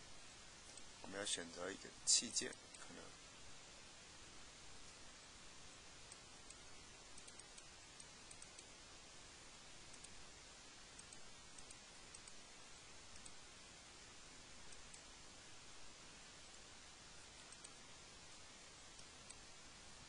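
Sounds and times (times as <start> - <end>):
faint hiss: 0.0 - 20.0
computer mouse clicks: 6.1 - 8.7, 9.9 - 10.2, 11.0 - 12.4, 13.1 - 13.4, 14.7 - 15.1, 17.4 - 19.5.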